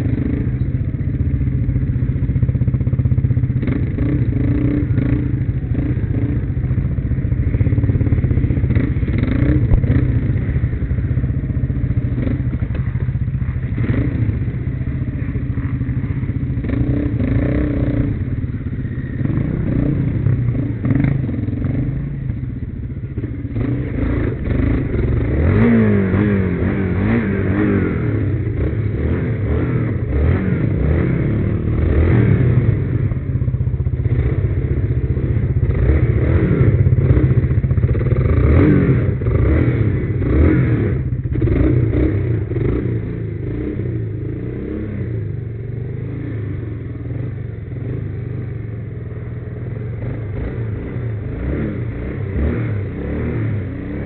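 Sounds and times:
clatter over rough ground: 0.0s - 27.6s
quad bike engine revving: 0.0s - 54.0s.

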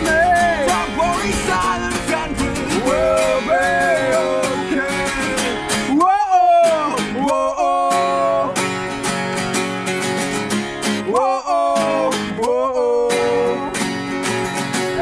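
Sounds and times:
man singing: 0.0s - 8.6s, 10.9s - 13.9s
acoustic guitars strummed: 0.0s - 15.0s.

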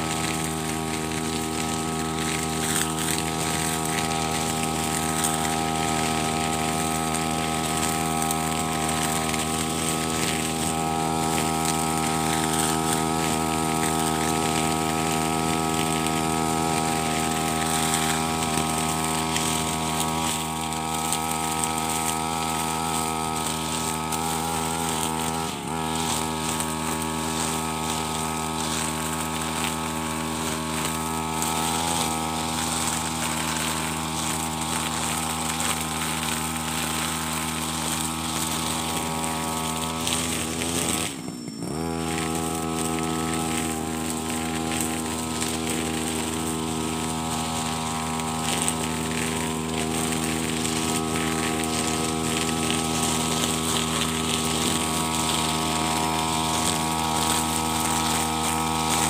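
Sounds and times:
brush cutter engine running: 0.0s - 59.0s.

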